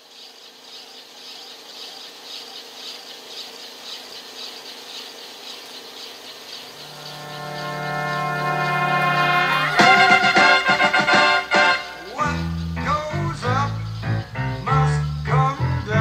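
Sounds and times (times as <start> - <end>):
insects chirping: 0.0 - 16.0
low music: 6.8 - 14.0.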